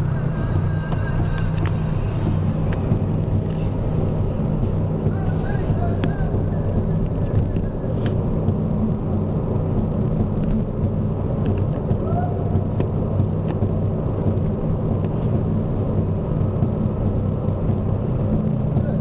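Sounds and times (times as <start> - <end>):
car engine and tyre rumble: 0.0 - 19.0.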